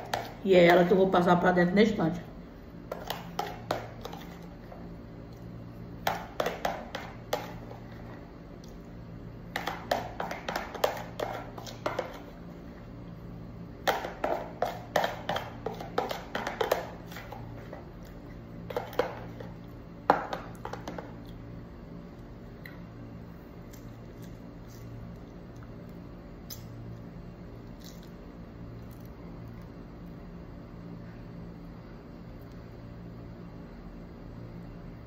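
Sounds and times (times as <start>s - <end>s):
metal spoon scraping plastic tub: 9.6s - 12.4s.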